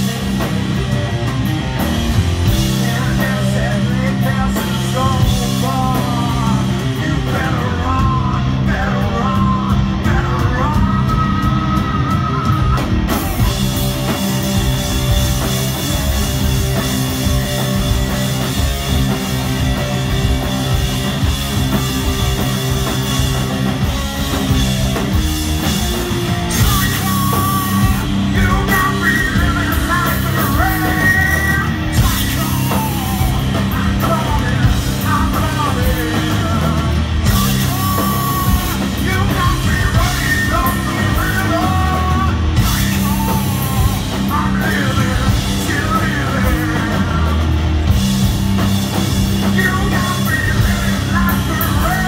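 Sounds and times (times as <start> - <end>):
rock band playing: 0.0 - 52.0
person singing and shouting: 2.4 - 13.9, 26.5 - 47.6, 49.3 - 52.0.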